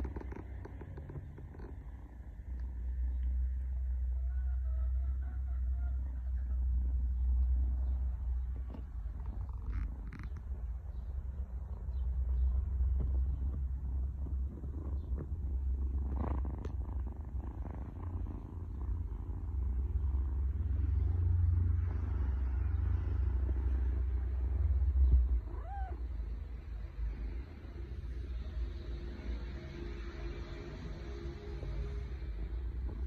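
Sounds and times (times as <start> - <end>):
kitten purring: 0.0 - 33.0
kitten squeak: 25.5 - 26.0.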